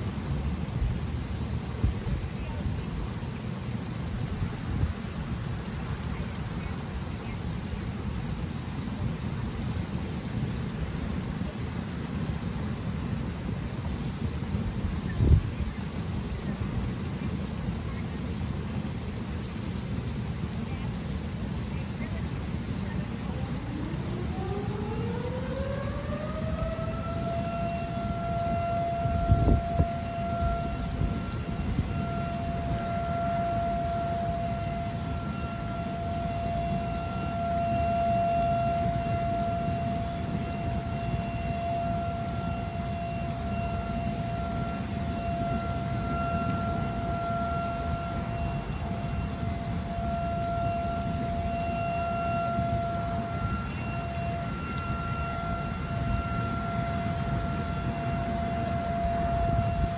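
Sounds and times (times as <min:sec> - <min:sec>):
siren wailing: 0:23.3 - 0:59.9.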